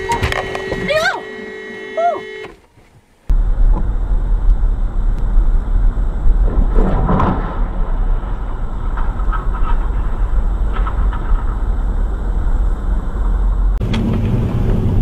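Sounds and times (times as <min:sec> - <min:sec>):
loud burst of noise: 0:00.0 - 0:02.5, 0:03.3 - 0:15.0
road and engine rumble inside car: 0:07.7 - 0:15.0.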